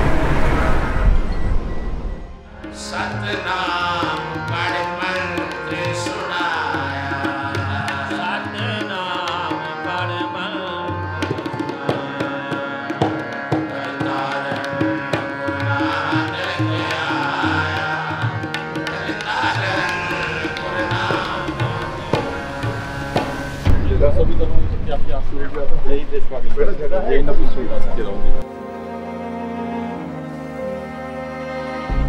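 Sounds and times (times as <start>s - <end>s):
tabla rhythm: 2.5s - 24.4s
person singing: 2.6s - 23.4s.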